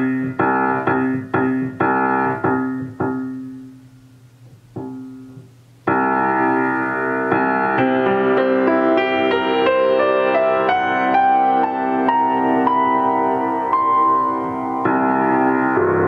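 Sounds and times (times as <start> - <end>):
piano playing: 0.0 - 3.9, 4.7 - 16.0
piano string harmonics: 4.7 - 16.0.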